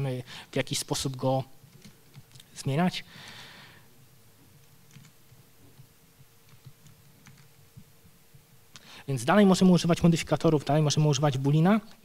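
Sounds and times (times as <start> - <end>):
low steady hum: 0.0 - 12.0
computer keys clicking: 1.7 - 2.5, 4.6 - 5.4, 6.4 - 7.6.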